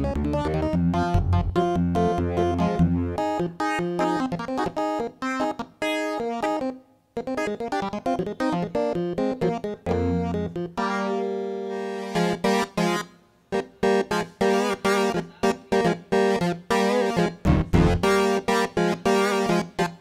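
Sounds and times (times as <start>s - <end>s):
synthesizer sustained chord: 1.8s - 3.3s, 9.9s - 12.2s
synthesizer playing short notes: 9.9s - 12.1s.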